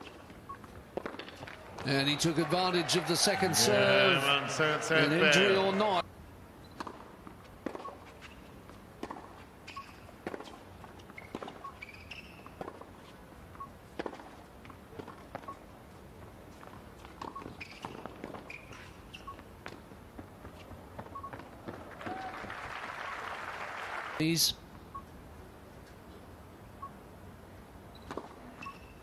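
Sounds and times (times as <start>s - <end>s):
hushed arena crowd: 1.4s - 6.0s, 21.8s - 24.5s
tennis ball bounces and racquet hits: 6.8s - 13.2s, 13.9s - 15.5s
shoe squeaks: 7.8s - 8.5s, 9.6s - 13.7s, 17.0s - 19.5s, 27.9s - 29.0s.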